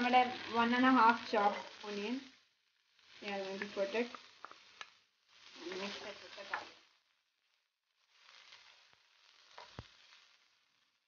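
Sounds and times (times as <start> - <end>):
onion sizzling in hot oil: 0.0 - 11.0
wooden spatula stirring: 3.2 - 6.8.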